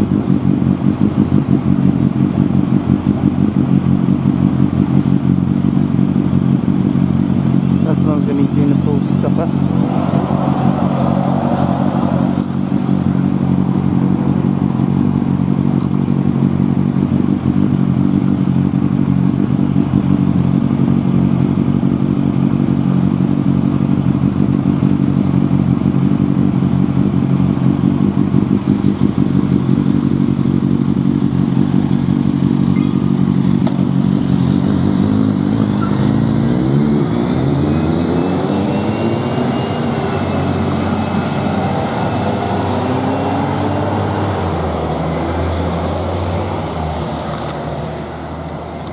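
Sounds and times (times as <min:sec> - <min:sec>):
motorcycle engine idling: 0:00.0 - 0:09.8, 0:12.3 - 0:36.2
motorcycle revving and pulling away: 0:00.0 - 0:48.9.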